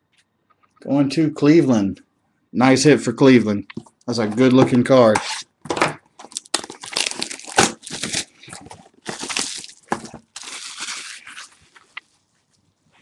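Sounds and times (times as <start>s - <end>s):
plastic packaging crinkling: 5.7s - 12.5s.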